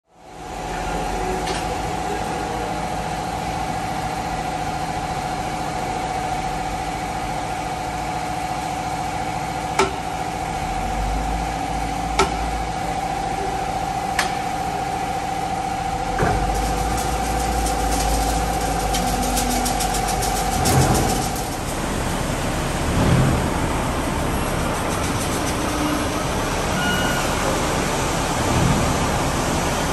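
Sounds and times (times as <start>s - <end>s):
machinery whine and hum: 0.2s - 29.9s
heavy rumble with fast rattle: 0.4s - 29.9s
sharp metal knocks: 9.8s - 10.0s.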